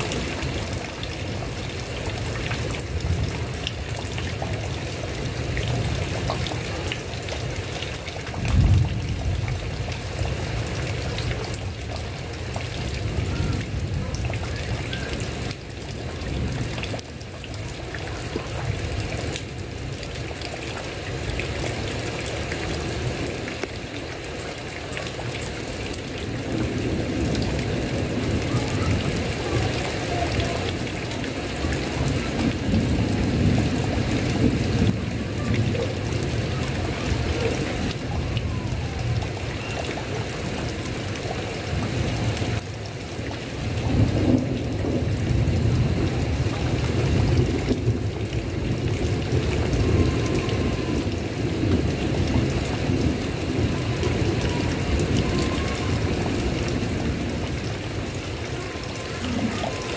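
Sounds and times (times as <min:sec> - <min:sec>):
heavy rain on a tile roof: 0:00.0 - 0:59.9
thunder rumble: 0:08.4 - 0:11.1.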